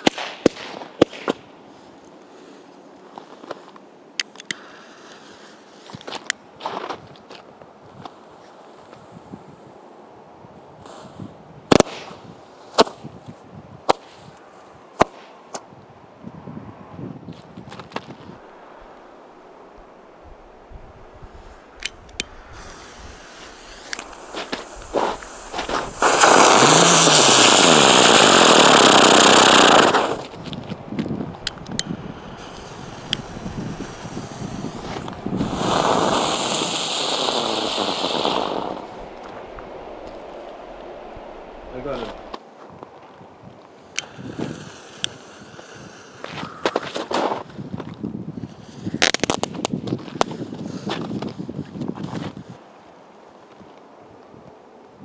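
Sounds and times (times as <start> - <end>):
firework bangs: 11.7 - 12.2, 22.6 - 30.5, 31.3 - 42.4.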